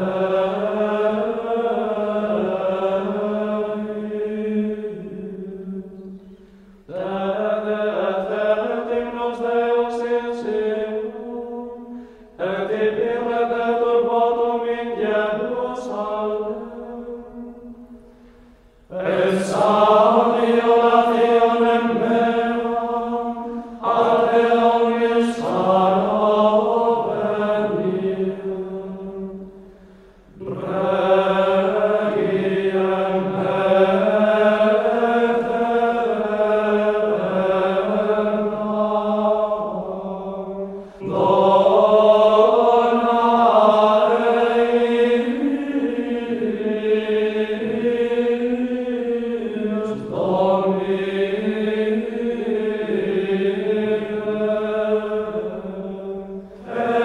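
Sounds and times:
slow sung chant: 0:00.0 - 0:57.0.

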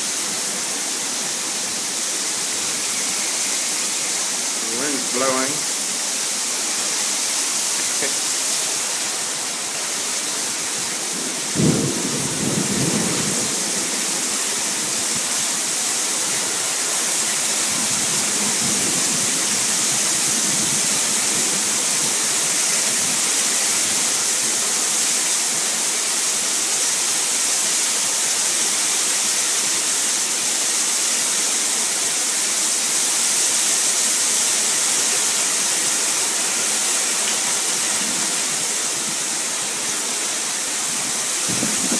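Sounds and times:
heavy rain pouring: 0:00.0 - 0:41.9.

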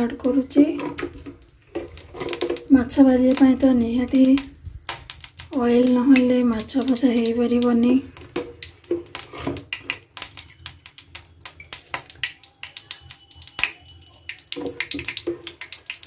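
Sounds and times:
hot oil crackling and popping: 0:00.0 - 0:16.0.

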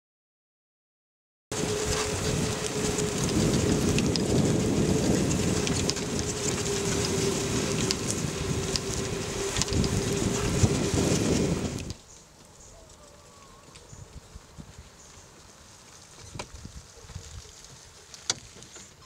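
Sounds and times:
steady hum: 0:01.5 - 0:12.0
tyres rumbling on grass: 0:01.5 - 0:19.0.

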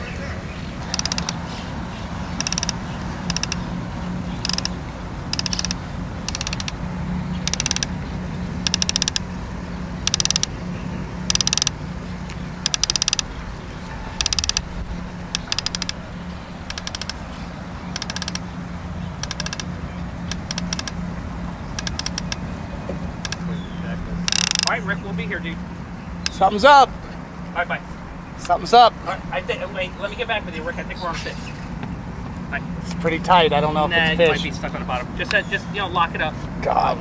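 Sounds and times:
fishing reel ratchet clicking: 0:00.9 - 0:01.4, 0:02.4 - 0:03.7, 0:04.4 - 0:06.8, 0:07.4 - 0:07.9, 0:08.6 - 0:09.3, 0:10.0 - 0:10.5, 0:11.3 - 0:11.8, 0:12.6 - 0:13.3, 0:14.2 - 0:14.6, 0:15.3 - 0:17.2, 0:17.9 - 0:18.4, 0:19.2 - 0:19.7, 0:20.3 - 0:21.0, 0:21.8 - 0:22.4, 0:24.3 - 0:24.7.

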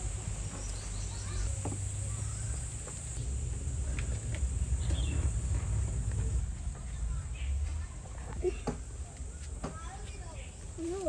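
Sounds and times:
insect chorus: 0:00.0 - 0:06.0
low outdoor rumble: 0:00.0 - 0:11.0.

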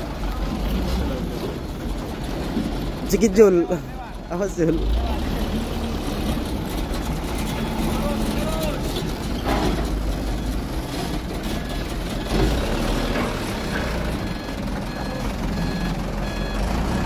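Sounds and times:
truck engine running: 0:00.0 - 0:17.0
reversing beeps: 0:11.4 - 0:17.0.

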